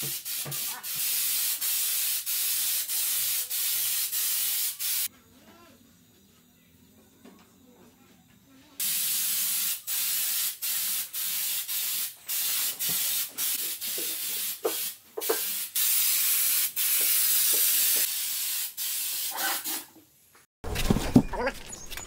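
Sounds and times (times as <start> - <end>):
paint spray gun hissing: 0.0 - 5.1, 8.8 - 19.9.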